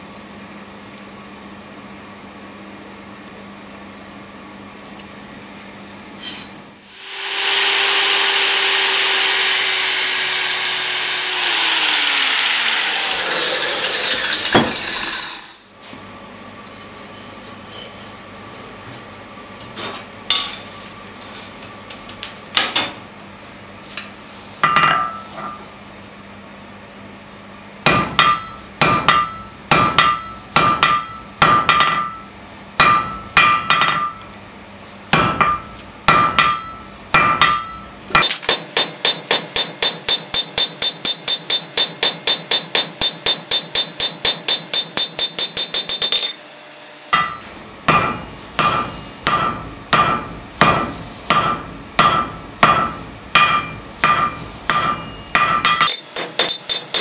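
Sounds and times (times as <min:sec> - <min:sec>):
anvil ringing: 0:24.6 - 0:25.6, 0:27.9 - 0:34.4, 0:35.1 - 0:46.4, 0:47.1 - 0:57.0
hammer striking steel on anvil: 0:24.6 - 0:25.7, 0:27.8 - 0:34.4, 0:35.1 - 0:46.4, 0:47.1 - 0:57.0.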